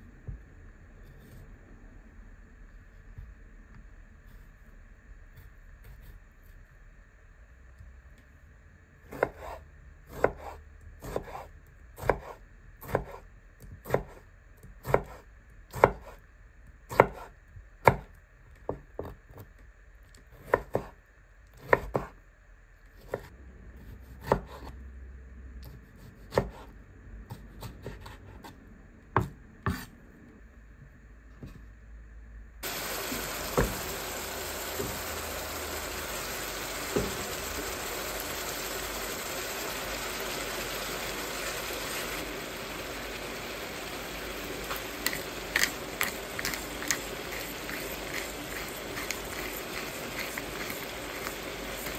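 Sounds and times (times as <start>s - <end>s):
knife chopping on cutting board: 9.1s - 14.2s, 14.8s - 16.2s, 16.9s - 18.1s, 20.3s - 21.0s, 21.6s - 22.2s, 24.0s - 24.7s, 25.6s - 26.7s, 27.3s - 28.5s, 29.2s - 29.9s
meat sizzling in a frying pan: 32.6s - 51.9s.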